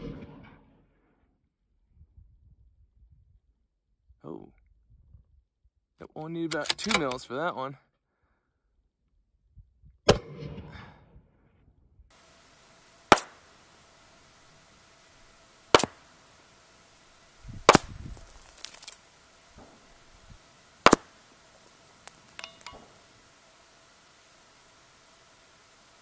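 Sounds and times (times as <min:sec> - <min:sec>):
rifle shot with echo: 0:00.0 - 0:00.7, 0:12.4 - 0:16.9, 0:17.6 - 0:18.9, 0:20.6 - 0:23.2
bullets hitting steel target: 0:13.1 - 0:13.5, 0:15.7 - 0:16.1, 0:17.6 - 0:20.0, 0:20.8 - 0:21.2, 0:22.0 - 0:23.0.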